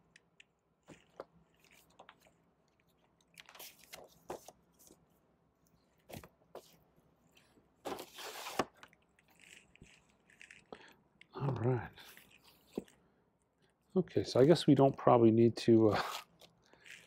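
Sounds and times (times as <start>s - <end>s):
paper and card rustling: 0.8s - 5.1s, 6.0s - 10.7s, 15.9s - 17.0s.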